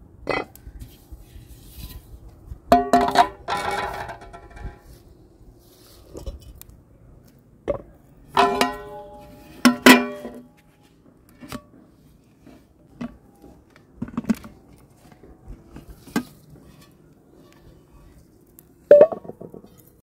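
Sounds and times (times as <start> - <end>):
metal tray clanging against pot: 8.4 - 10.4.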